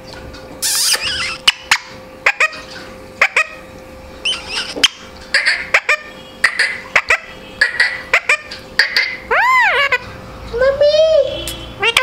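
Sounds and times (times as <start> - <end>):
parakeet squawking and clicking: 0.6 - 3.6, 4.2 - 10.2, 11.8 - 12.0.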